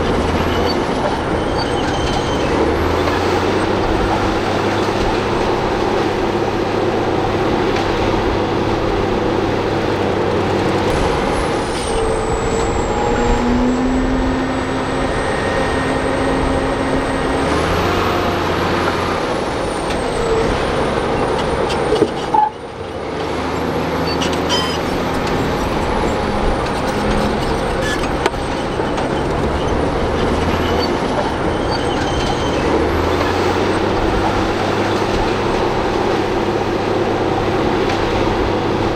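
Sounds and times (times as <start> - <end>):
bulldozer diesel engine running: 0.0 - 38.9
thin high whine: 10.9 - 18.7.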